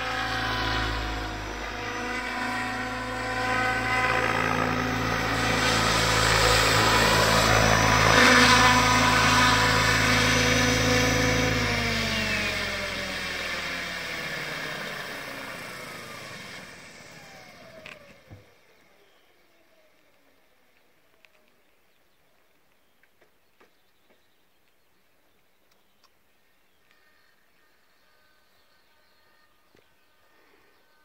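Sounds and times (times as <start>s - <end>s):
rc helicopter rotors whining: 0.0s - 21.4s.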